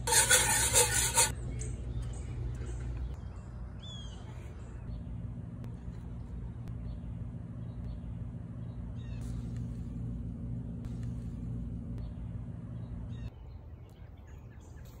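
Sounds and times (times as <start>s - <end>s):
low mechanical hum: 0.0s - 15.0s
outdoor background noise: 0.0s - 15.0s.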